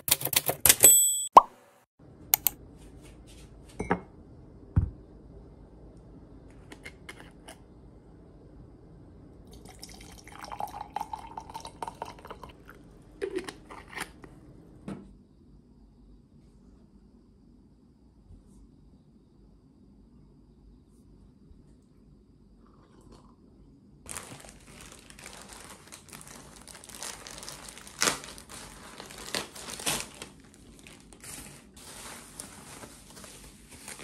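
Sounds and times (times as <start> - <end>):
tea pouring into mug: 9.5 - 13.6.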